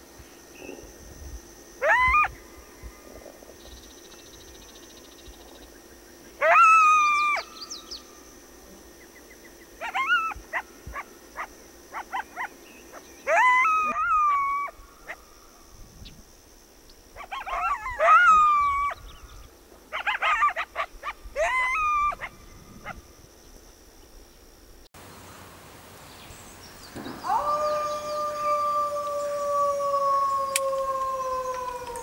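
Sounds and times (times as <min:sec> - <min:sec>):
coyotes yipping: 0:01.8 - 0:03.3, 0:06.4 - 0:08.0, 0:09.8 - 0:15.4, 0:17.1 - 0:23.1
coyotes howling: 0:01.8 - 0:03.8, 0:06.3 - 0:08.4, 0:09.4 - 0:15.6, 0:17.1 - 0:23.1, 0:27.0 - 0:32.0.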